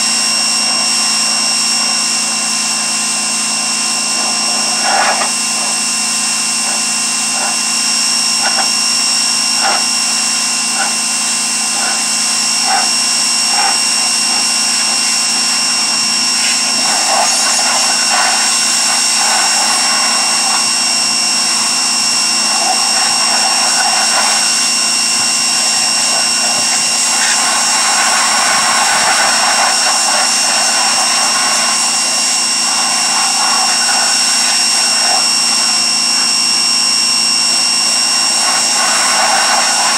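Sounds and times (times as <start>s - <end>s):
pressure washer whine: 0.0s - 39.9s.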